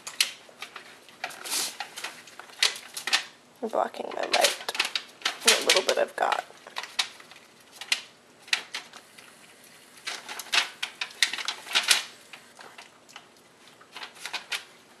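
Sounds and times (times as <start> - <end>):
piglet chewing and smacking: 12.4 - 14.9.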